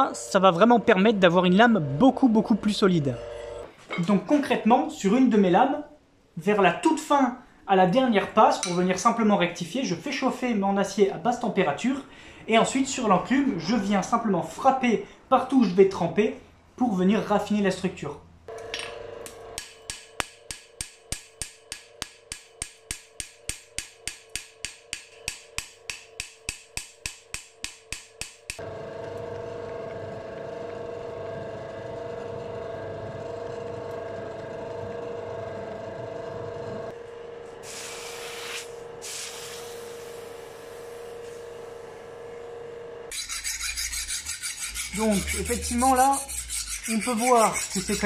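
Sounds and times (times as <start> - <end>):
hammer striking metal on anvil: 8.6 - 8.9, 19.6 - 28.6.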